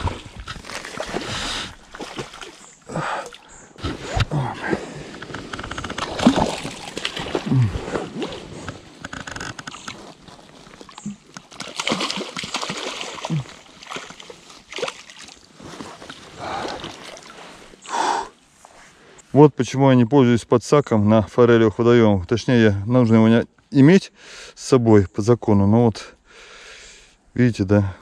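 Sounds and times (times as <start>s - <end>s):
fish splashing water: 0.0s - 2.7s, 5.9s - 9.0s, 9.7s - 15.5s
grass and reeds rustling: 5.0s - 17.8s.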